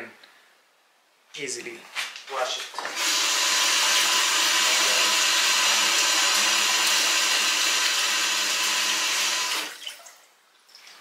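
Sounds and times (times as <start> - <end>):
faucet water splashing: 2.8 - 11.0.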